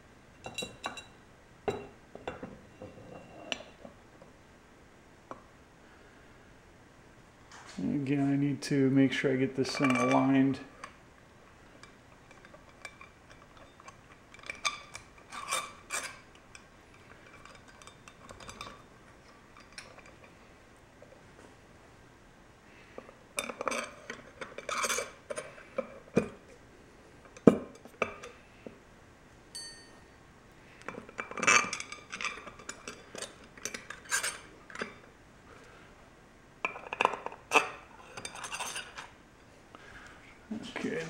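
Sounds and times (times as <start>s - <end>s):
steel bolts clinking and scraping: 9.6s - 11.0s, 11.8s - 20.4s, 23.4s - 25.8s, 30.9s - 35.1s, 36.6s - 39.1s.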